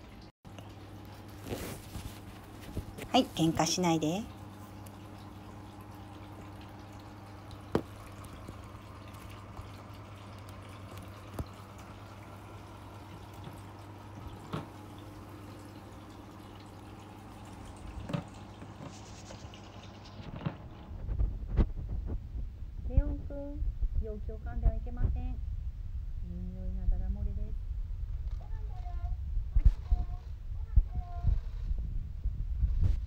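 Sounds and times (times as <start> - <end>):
water fountain trickling: 0.0 - 20.9
low pump hum: 0.0 - 33.0.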